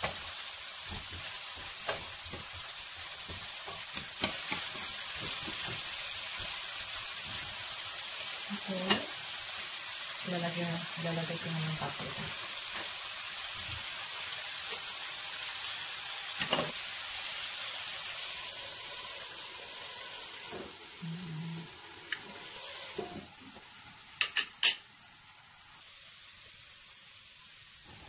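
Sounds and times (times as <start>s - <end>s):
spatula stirring food: 0.0s - 9.2s
food sizzling in a frying pan: 0.0s - 28.0s
spatula knocking pan: 0.8s - 6.5s.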